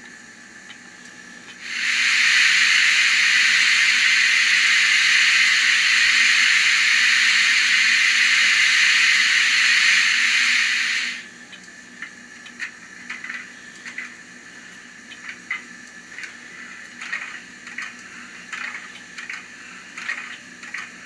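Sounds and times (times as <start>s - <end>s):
steam release hiss: 1.6s - 11.3s.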